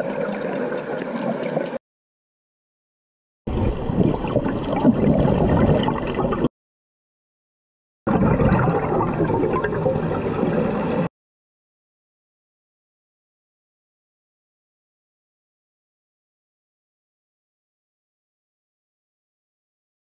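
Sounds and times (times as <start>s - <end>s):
underwater water noise: 0.0s - 1.8s, 3.5s - 6.5s, 8.1s - 11.1s.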